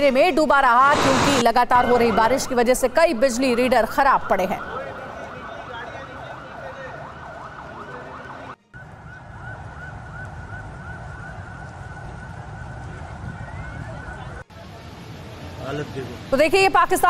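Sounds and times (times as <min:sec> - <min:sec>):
steady low rumble: 0:00.6 - 0:03.6
electronic siren wailing: 0:01.0 - 0:14.4.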